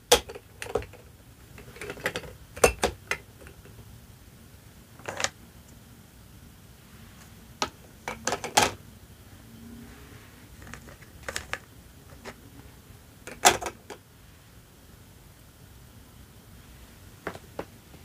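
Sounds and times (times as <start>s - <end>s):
plastic toys clicking and tapping: 0.0s - 3.8s, 5.0s - 5.4s, 7.6s - 8.8s, 10.6s - 12.4s, 13.3s - 14.0s.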